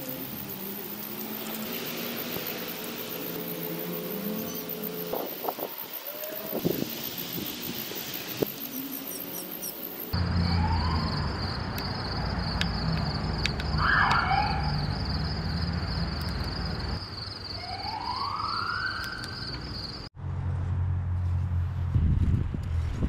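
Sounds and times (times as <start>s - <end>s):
slow rising tones: 0.0s - 10.2s
insects chirring: 0.0s - 20.1s.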